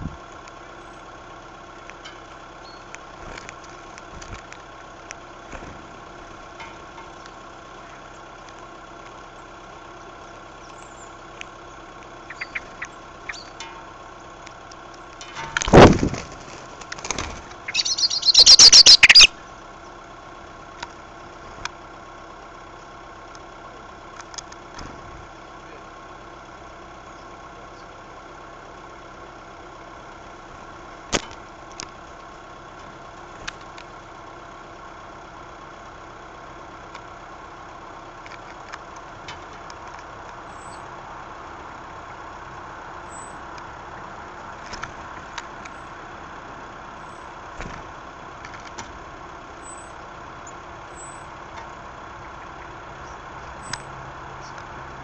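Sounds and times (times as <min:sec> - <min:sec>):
faint high bird peeps: 0:02.6 - 0:02.9, 0:10.6 - 0:13.6, 0:17.6 - 0:20.0, 0:40.5 - 0:40.9, 0:43.0 - 0:43.4, 0:49.6 - 0:51.4, 0:52.2 - 0:54.6.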